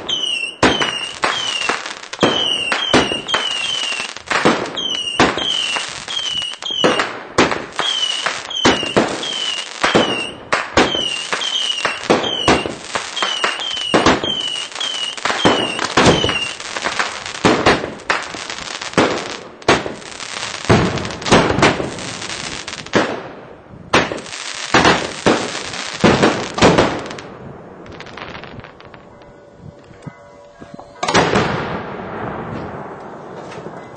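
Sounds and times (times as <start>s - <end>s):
falling whistle of fireworks: 0.0s - 22.6s
fireworks crackle: 0.0s - 23.1s, 23.9s - 30.0s
fireworks bangs: 0.0s - 30.0s, 31.0s - 33.9s.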